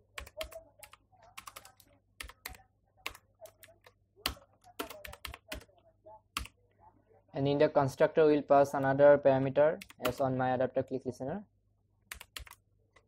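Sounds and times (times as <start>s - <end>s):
computer keyboard typing: 0.0s - 5.7s, 6.3s - 6.6s, 9.8s - 10.3s, 12.1s - 13.0s.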